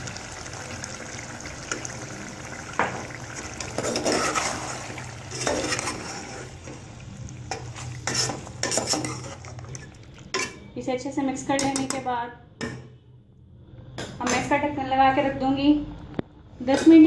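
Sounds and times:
hot oil sizzling: 0:00.0 - 0:10.6
metal spoon scraping pot: 0:03.7 - 0:06.6, 0:07.5 - 0:10.7.

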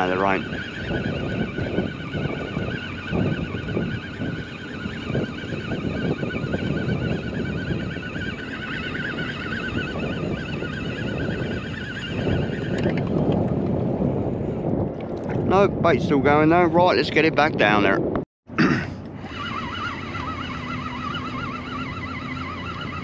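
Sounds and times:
fishing reel whine: 0:00.0 - 0:13.6, 0:19.0 - 0:23.0
water noise: 0:00.0 - 0:17.9, 0:18.9 - 0:23.0
wind: 0:00.0 - 0:23.0.

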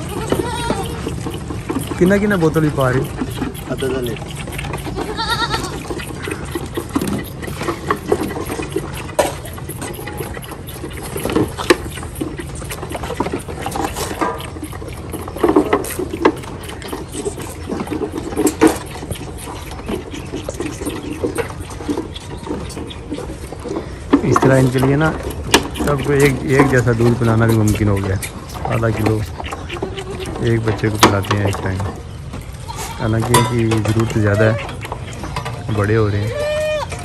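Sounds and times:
goat kids sucking and gurgling: 0:00.0 - 0:37.0.

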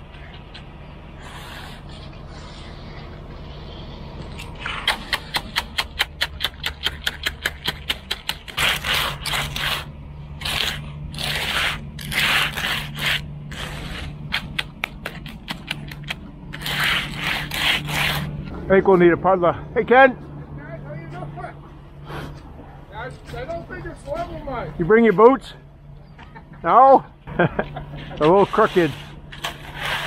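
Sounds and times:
steady low hum: 0:00.0 - 0:30.0
hand edger scraping concrete: 0:01.2 - 0:18.5, 0:28.0 - 0:30.0.

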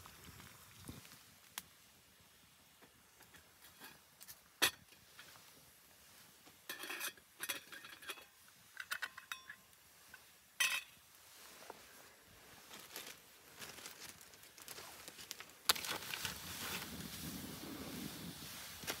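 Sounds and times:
metal pot and lid clinking: 0:06.7 - 0:09.6, 0:10.6 - 0:11.0.

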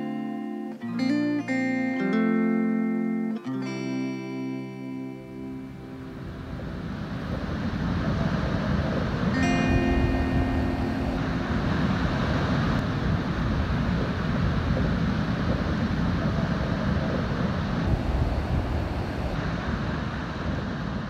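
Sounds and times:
ocean surf breaking: 0:04.6 - 0:21.0
wind rumble on microphone: 0:05.6 - 0:21.0.

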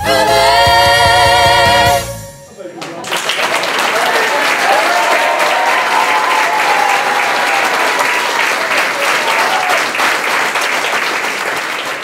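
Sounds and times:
people cheering: 0:02.6 - 0:12.0
audience applauding: 0:02.8 - 0:12.0.

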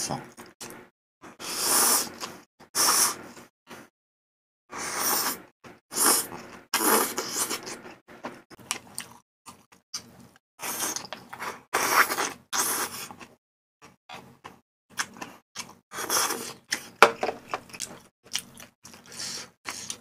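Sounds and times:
person slurping noodles: 0:01.3 - 0:03.4, 0:04.7 - 0:07.9, 0:10.6 - 0:13.2
person chewing: 0:06.0 - 0:20.0.

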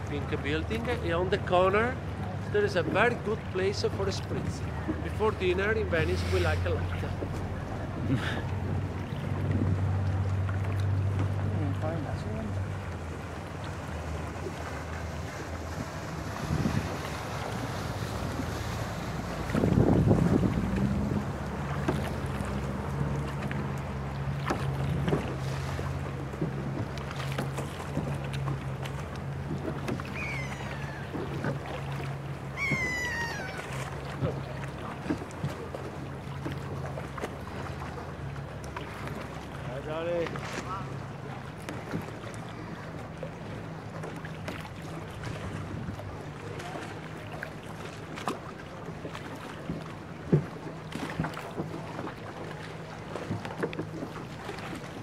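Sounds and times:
low engine hum: 0:00.0 - 0:55.0
water sloshing against hull: 0:00.0 - 0:55.0
high falling calls: 0:30.0 - 0:31.3, 0:32.4 - 0:33.9
oar knocking: 0:32.5 - 0:33.9.

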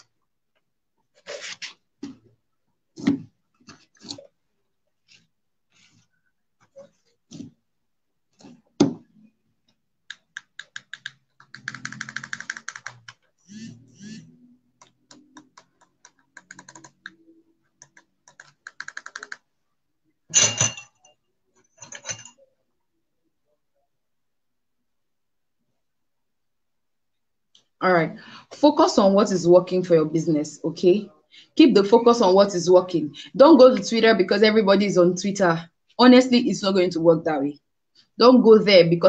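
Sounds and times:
computer keyboard typing: 0:10.1 - 0:19.5.

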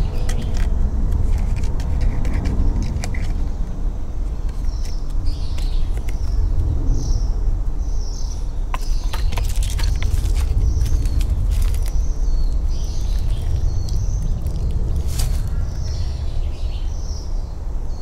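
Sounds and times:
steady low rumble: 0:00.0 - 0:18.0
small bird chirping: 0:04.3 - 0:18.0.

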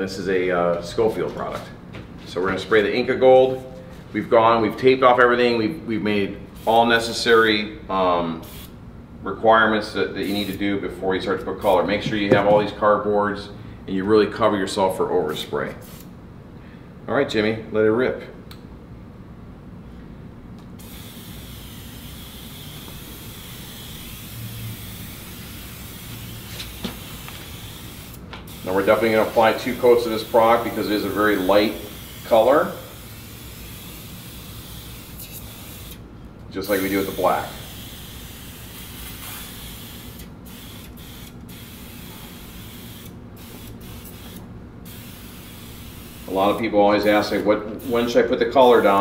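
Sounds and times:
sprayer hissing: 0:20.8 - 0:36.0, 0:36.7 - 0:49.0.

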